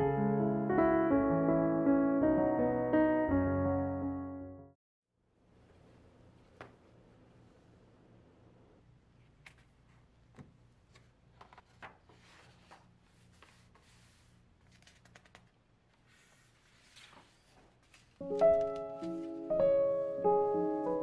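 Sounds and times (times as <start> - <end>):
piano music: 0.0 - 4.8, 18.2 - 21.0
book pages rustling and turning: 9.3 - 19.6.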